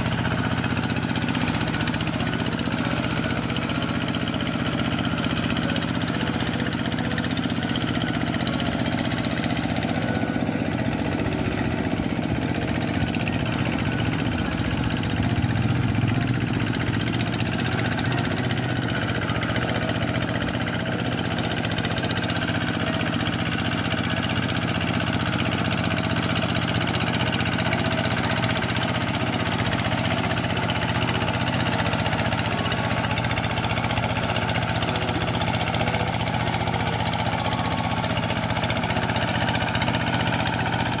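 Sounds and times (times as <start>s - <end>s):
hand tractor diesel engine: 0.0s - 41.0s.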